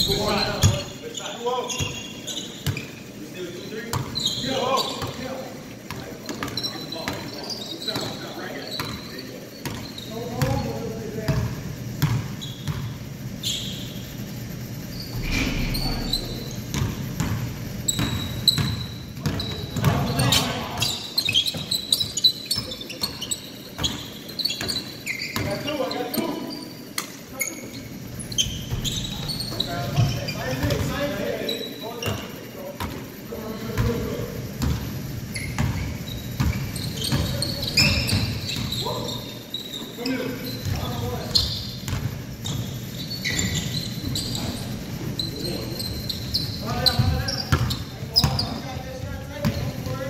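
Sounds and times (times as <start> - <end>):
sneaker squeaks: 0.0 - 50.0
basketball bouncing on wooden floor: 16.4 - 20.1.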